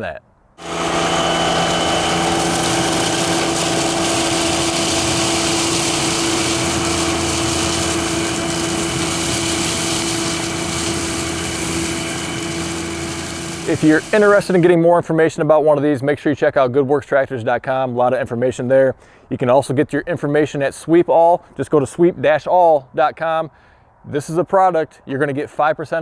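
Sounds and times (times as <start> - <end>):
hiss of lawn sweeper: 0.6 - 14.6
tractor engine running: 0.6 - 14.6.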